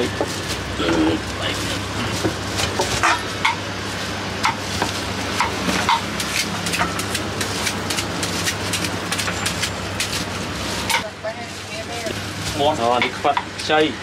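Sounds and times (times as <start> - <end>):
street background noise: 0.0 - 14.0
shredder scraping fruit: 3.9 - 11.0.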